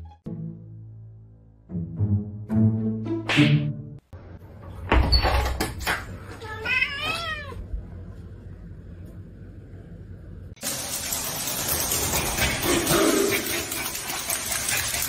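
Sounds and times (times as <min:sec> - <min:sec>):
cat meowing: 0:06.4 - 0:07.6.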